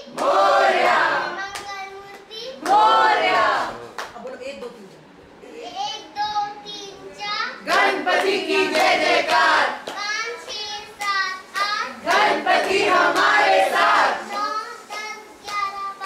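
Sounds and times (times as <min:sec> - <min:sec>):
girl singing: 0:14.2 - 0:16.0.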